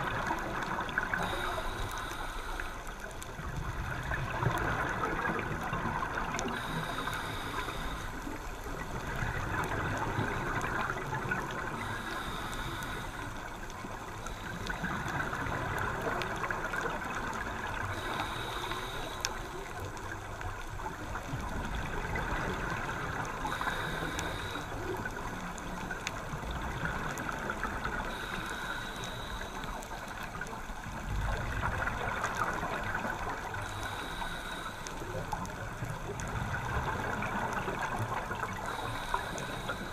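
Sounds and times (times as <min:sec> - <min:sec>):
regulator hiss on inhale: 0:00.1 - 0:03.4, 0:04.6 - 0:21.5, 0:22.1 - 0:39.9.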